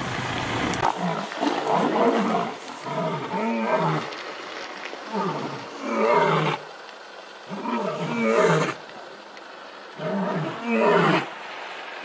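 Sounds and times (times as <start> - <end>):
lion roaring: 0.8 - 4.1, 7.5 - 8.8, 10.0 - 11.3.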